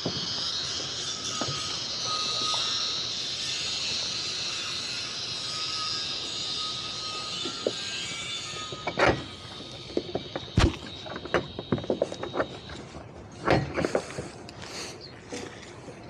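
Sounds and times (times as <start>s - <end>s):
gear handled on boat deck: 9.9s - 14.6s.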